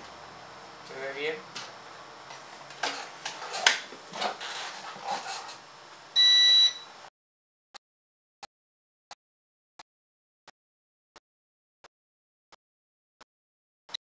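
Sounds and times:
high electronic beep: 6.2 - 6.9.

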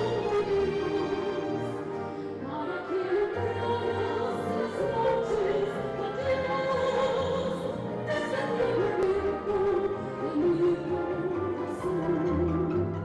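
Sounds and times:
orchestra playing: 0.0 - 13.0
operatic voice singing: 2.4 - 13.0.

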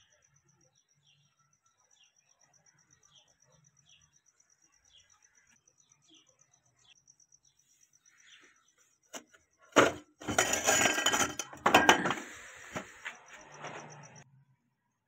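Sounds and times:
metal clattering and rattling: 9.7 - 13.0.

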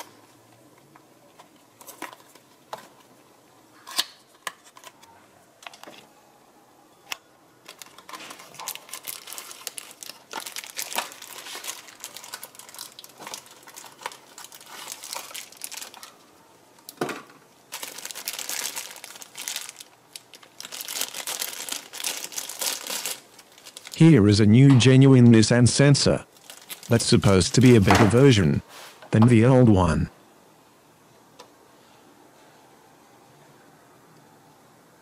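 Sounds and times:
plastic bag crinkling: 7.6 - 16.3, 17.7 - 24.0, 26.3 - 27.8.

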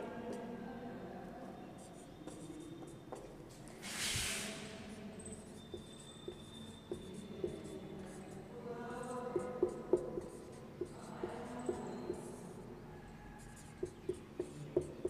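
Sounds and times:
marker pen writing on whiteboard: 1.8 - 3.8, 4.8 - 15.0
short hissing rush of noise: 3.8 - 4.9.

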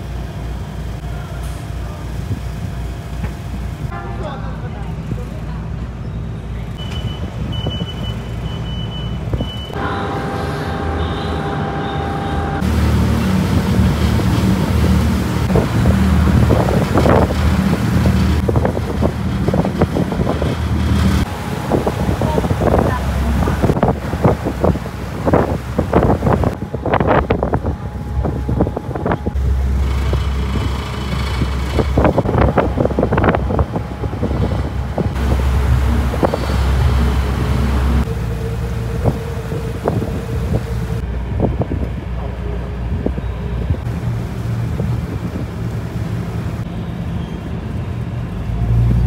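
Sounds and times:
ferry engine rumbling: 0.0 - 49.0
high beep: 6.8 - 9.8
wind on microphone: 9.3 - 46.7
whining tone: 9.4 - 43.8.

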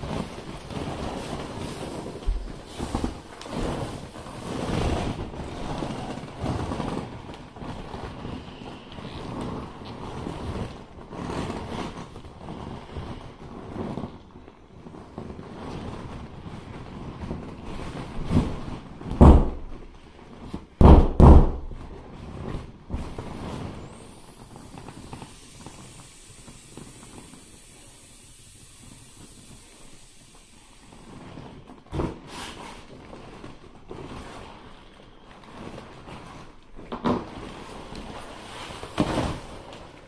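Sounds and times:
loud thumps: 19.1 - 19.8, 20.8 - 21.8
vinyl pool toy squeezed: 22.4 - 39.6.

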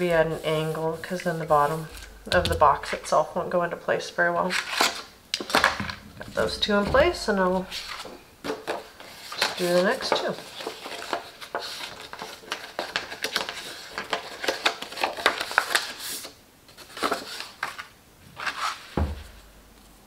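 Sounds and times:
cardstock rustling and sliding: 6.3 - 19.4.

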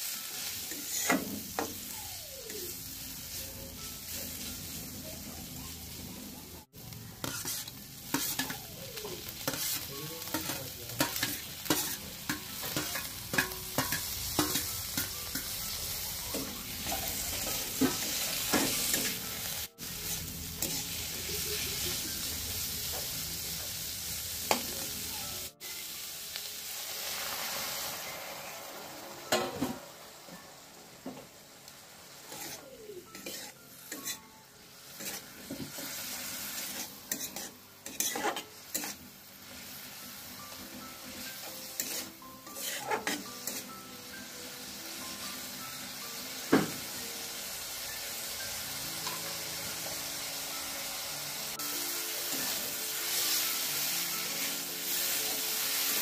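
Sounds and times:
food sizzling in hot oil: 0.0 - 56.0
spatula scraping and clinking pan: 7.2 - 8.6, 9.2 - 15.6, 32.3 - 34.3, 34.9 - 39.0, 41.4 - 43.7.

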